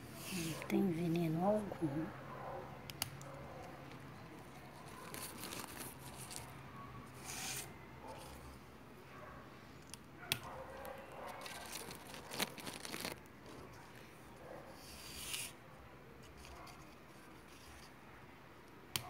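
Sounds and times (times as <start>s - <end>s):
faint rustling and crackling: 3.2s - 15.6s, 16.2s - 18.0s.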